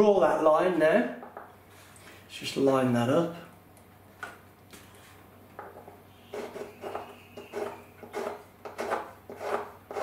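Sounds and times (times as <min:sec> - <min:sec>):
pencil scratching on wood: 0:06.3 - 0:10.0.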